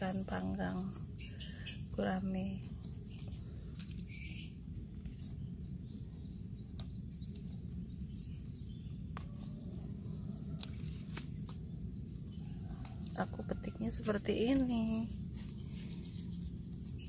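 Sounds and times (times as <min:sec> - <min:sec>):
outdoor background noise: 0:00.0 - 0:17.0
leaves rustling: 0:02.5 - 0:17.0
lettuce leaves snapping: 0:06.7 - 0:11.7.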